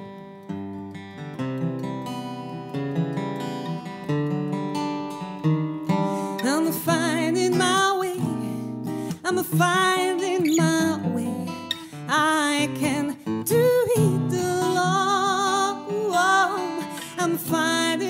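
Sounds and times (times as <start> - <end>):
acoustic guitar accompaniment: 0.0 - 18.0
woman singing with vibrato: 6.3 - 18.0.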